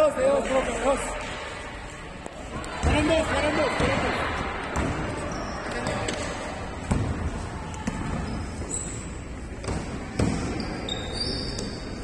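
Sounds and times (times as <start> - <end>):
basketball bouncing: 5.8 - 8.4, 9.6 - 10.7
shoe squeaks on court: 8.2 - 9.3, 10.4 - 12.0.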